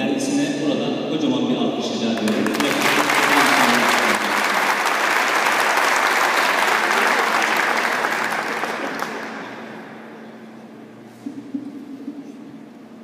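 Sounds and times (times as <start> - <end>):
audience applauding: 2.2 - 9.8.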